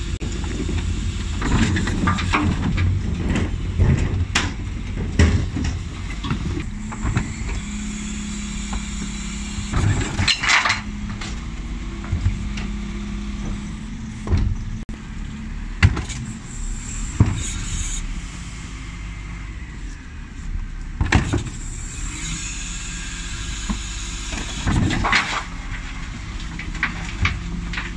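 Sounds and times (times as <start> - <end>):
hydraulic bin lift: 0.0 - 14.9, 21.0 - 27.9.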